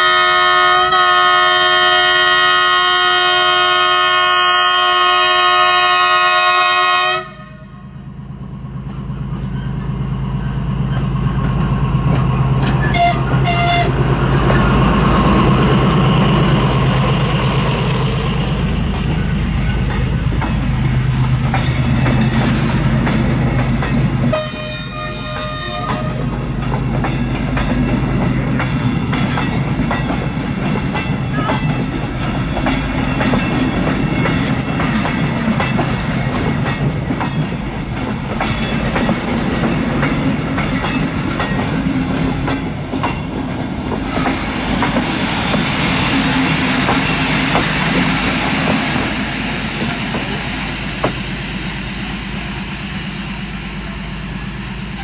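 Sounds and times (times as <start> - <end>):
locomotive horn blast: 0.0 - 7.9, 12.8 - 14.1, 24.3 - 26.4
locomotive engine rumbling: 7.9 - 55.0
train wheels clattering on rails: 8.6 - 53.0.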